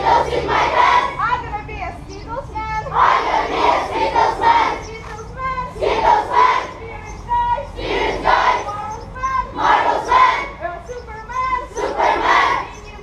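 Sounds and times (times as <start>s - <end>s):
children chanting: 0.0s - 1.2s, 2.9s - 5.0s, 5.7s - 6.8s, 7.7s - 8.8s, 9.5s - 10.6s, 11.6s - 12.8s.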